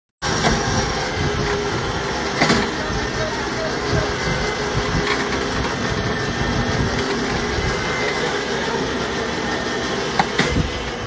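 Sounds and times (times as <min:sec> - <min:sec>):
vehicle engine rumbling: 0:00.2 - 0:11.0.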